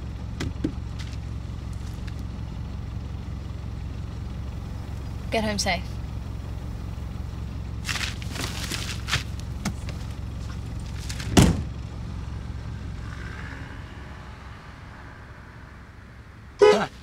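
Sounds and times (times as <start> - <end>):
car engine running: 0.0 - 17.0
car door shutting: 11.0 - 11.7.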